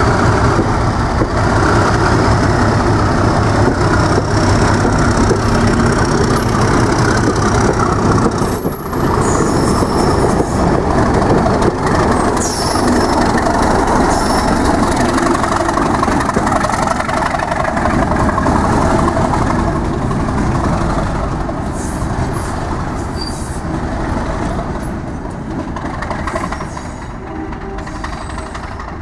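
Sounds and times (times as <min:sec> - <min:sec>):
diesel locomotive engine: 0:00.0 - 0:29.0
high squeals: 0:12.1 - 0:15.1.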